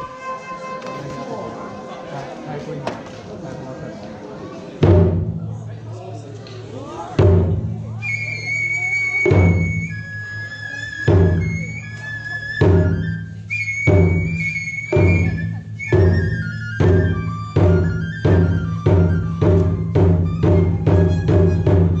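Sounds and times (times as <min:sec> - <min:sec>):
flute playing slow high melody: 0:00.0 - 0:02.2, 0:08.0 - 0:22.0
taiko drum strokes: 0:04.7 - 0:05.7, 0:07.2 - 0:08.2, 0:12.5 - 0:22.0.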